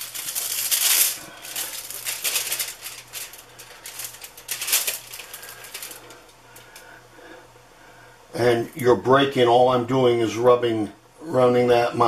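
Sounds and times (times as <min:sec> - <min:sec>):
aluminium foil crinkling: 0:00.0 - 0:06.9.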